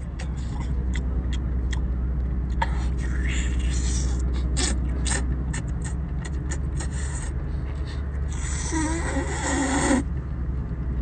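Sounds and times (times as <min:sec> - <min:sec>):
wet smacking while chewing: 0:00.1 - 0:01.9, 0:04.4 - 0:07.4.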